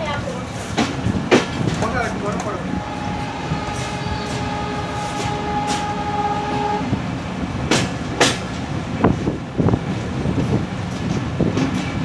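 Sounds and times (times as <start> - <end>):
train rumble: 0.0 - 12.0
wheels clacking over rail joints: 0.0 - 12.0
train horn: 1.8 - 7.9.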